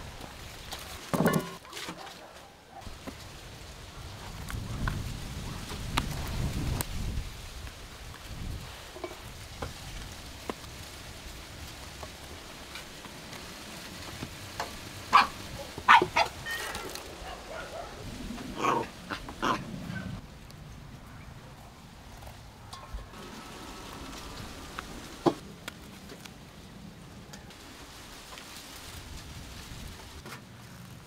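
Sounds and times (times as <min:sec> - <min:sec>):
small dog barking: 0:15.1 - 0:16.4, 0:17.2 - 0:18.0.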